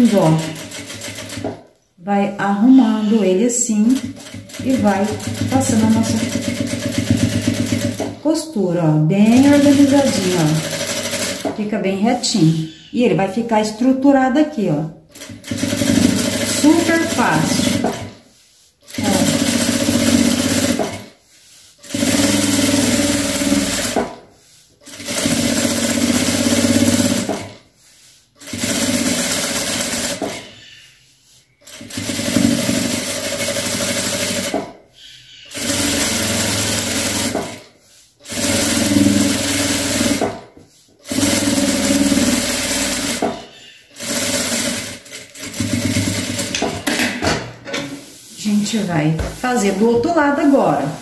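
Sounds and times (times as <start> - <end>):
sewing machine stitching: 0.0 - 1.7, 3.8 - 8.3, 9.2 - 11.6, 15.1 - 21.2, 21.8 - 24.2, 24.8 - 27.6, 28.4 - 30.5, 31.6 - 34.8, 35.5 - 48.0.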